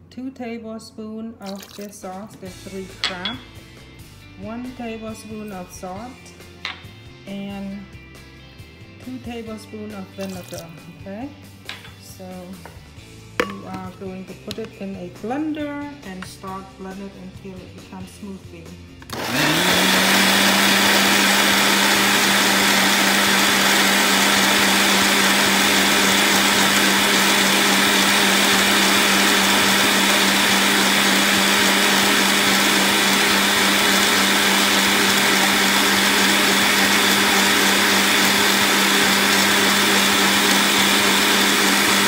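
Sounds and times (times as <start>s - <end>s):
blender running: 19.1s - 42.0s.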